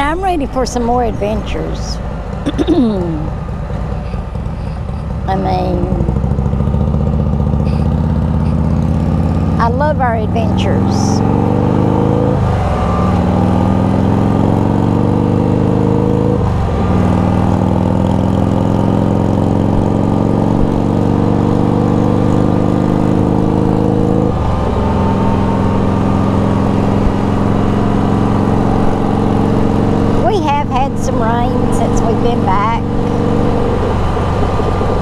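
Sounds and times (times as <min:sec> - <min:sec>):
motorcycle engine accelerating: 0:00.0 - 0:35.0.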